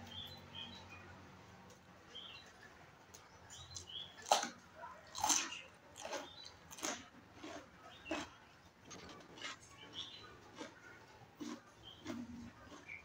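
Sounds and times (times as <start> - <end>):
person chewing and biting: 4.2 - 10.8, 11.4 - 13.0.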